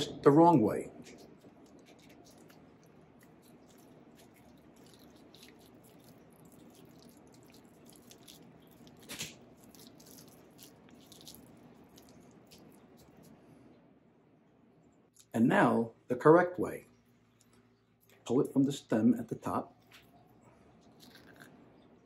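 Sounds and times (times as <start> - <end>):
banana squishing in hands: 1.0 - 13.7, 19.7 - 21.9.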